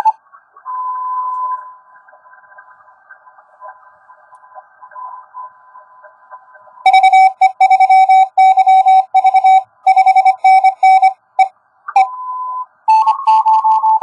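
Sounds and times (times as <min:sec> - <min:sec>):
morse code tones: 0:06.9 - 0:14.0.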